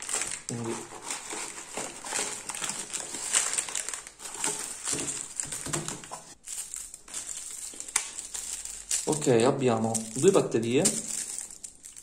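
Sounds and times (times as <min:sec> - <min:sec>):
plastic bags crinkling: 0:00.0 - 0:12.0
cardboard scraping: 0:00.1 - 0:06.4.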